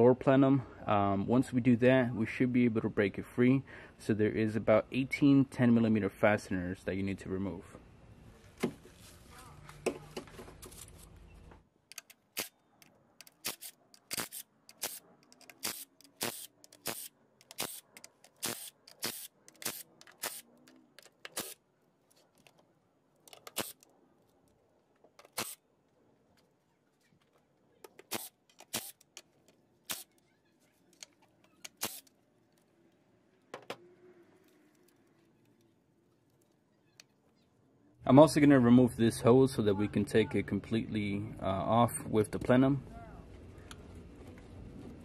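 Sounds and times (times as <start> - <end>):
hand ratchet clicking: 13.2 - 20.4.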